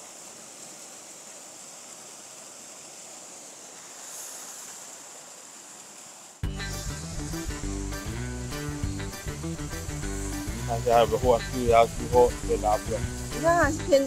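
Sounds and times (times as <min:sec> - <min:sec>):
creek water running: 0:00.0 - 0:14.0
background music: 0:06.4 - 0:14.0.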